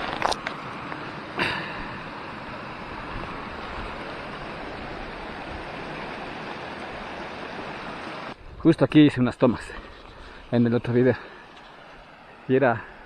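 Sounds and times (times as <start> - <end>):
stream splashing over rocks: 0.0 - 8.4.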